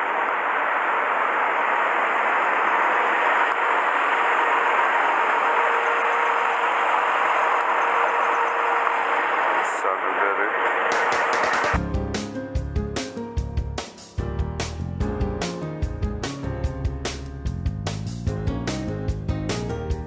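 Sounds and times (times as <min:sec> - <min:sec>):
faint steady hum: 0:00.0 - 0:11.8
truck machinery running: 0:00.0 - 0:11.8.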